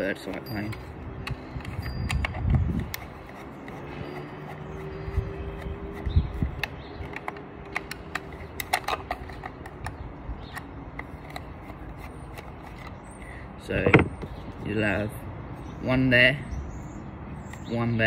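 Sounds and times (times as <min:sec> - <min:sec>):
screwdriver clicks and plastic creaks: 0:00.2 - 0:13.0.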